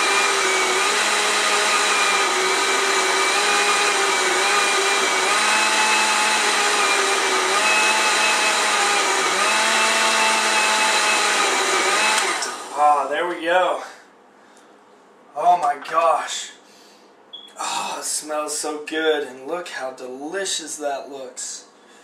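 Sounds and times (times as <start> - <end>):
blender motor whining: 0.0 - 12.8.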